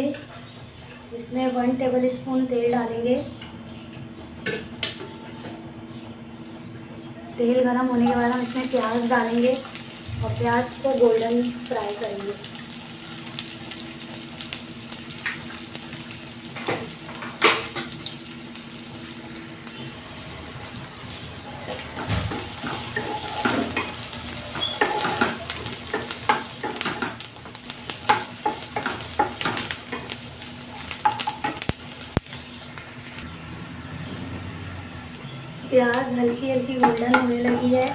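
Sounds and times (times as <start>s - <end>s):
onions sizzling in hot oil: 8.1s - 33.3s, 35.2s - 37.9s.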